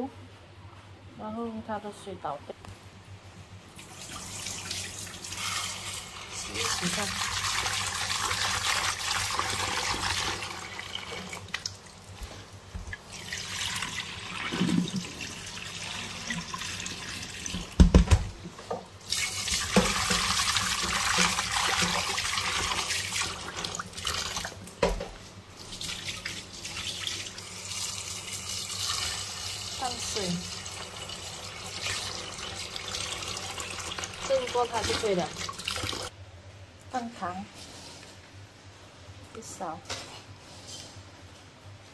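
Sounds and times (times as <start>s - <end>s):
tap running into metal pot: 19.6s - 22.1s.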